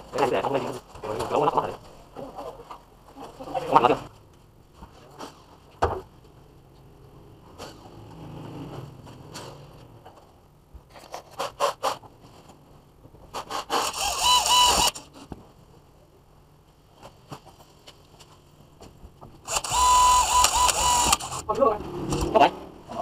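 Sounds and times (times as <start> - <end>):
cordless drill whining: 13.7 - 15.0, 19.5 - 21.4
sharp clicks: 19.5 - 21.4.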